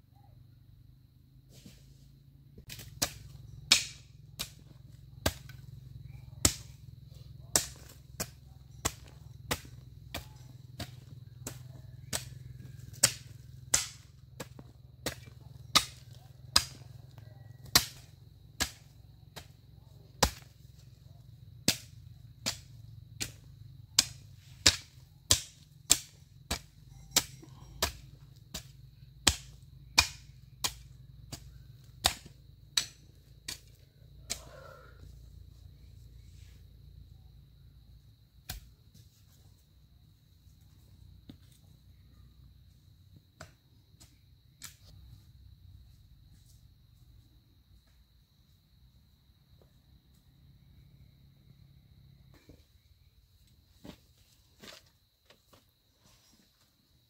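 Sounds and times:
hoe chopping hard soil: 2.6s - 20.9s, 21.6s - 34.9s, 38.4s - 38.7s.

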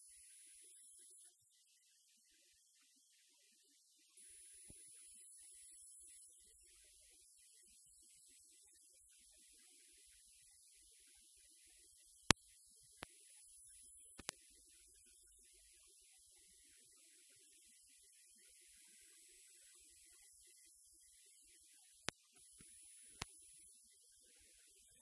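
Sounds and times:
sharp clicks: 14.1s - 14.4s.

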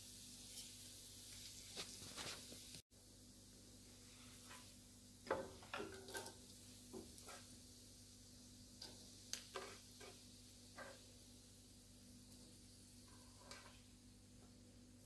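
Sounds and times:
vegetables dropping into wok: 8.8s - 11.1s.

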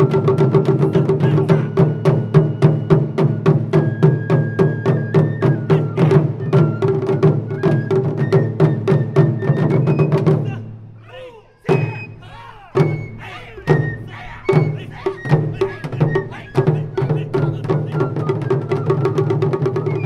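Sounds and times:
taiko drumming: 0.0s - 10.8s, 11.7s - 20.0s
bamboo flute melody: 0.0s - 20.0s.

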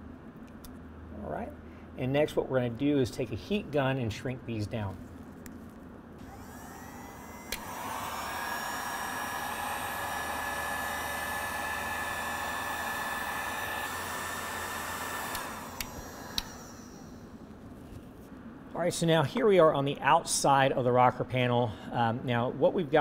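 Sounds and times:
heat gun fan hiss and whine: 0.0s - 23.0s
heat gun switch click: 7.4s - 8.4s, 9.0s - 16.7s.

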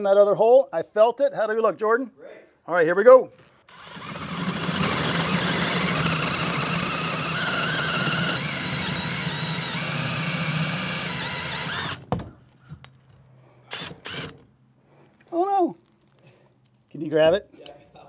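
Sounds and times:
power drill cutting with hole saw: 3.7s - 12.1s, 13.7s - 14.4s.

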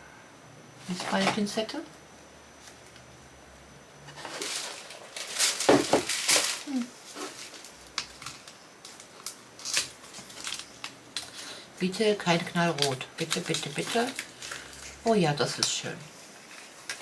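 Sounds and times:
cardboard carton rustling and scraping: 4.1s - 7.7s.

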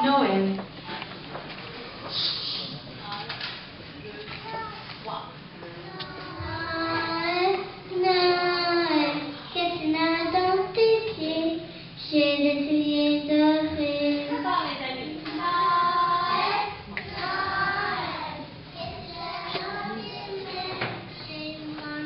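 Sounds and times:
children singing: 15.3s - 22.0s.

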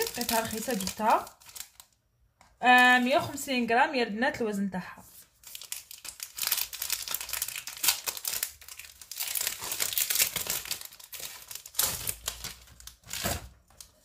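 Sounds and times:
wrapper crinkling and tearing: 0.0s - 2.0s, 5.3s - 14.0s.

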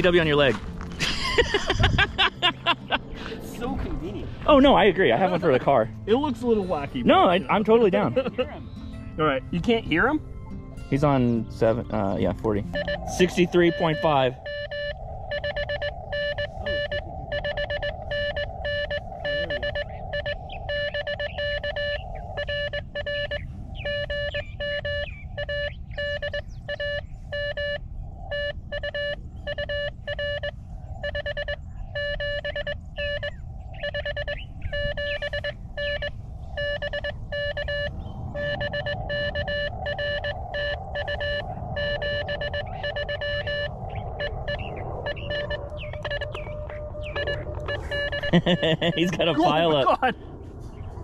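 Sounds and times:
morse code tone: 12.8s - 49.8s
second higher morse signal: 12.8s - 49.8s
radio band hiss: 13.0s - 14.4s, 44.6s - 50.2s.

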